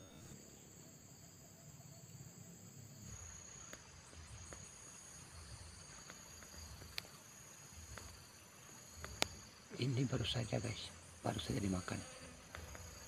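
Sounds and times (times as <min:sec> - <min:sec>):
high-pitched insect chorus: 0:00.0 - 0:13.0
sharp faint ticks: 0:09.0 - 0:09.4.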